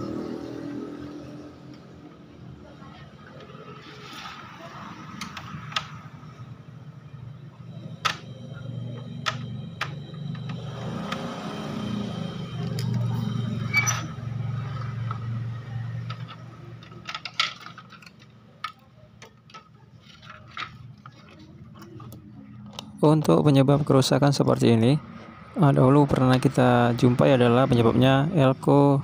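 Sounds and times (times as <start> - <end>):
steady low hum: 6.0 - 16.8
clicks and knocks handling wires: 8.0 - 8.3, 9.0 - 11.3, 16.0 - 22.9.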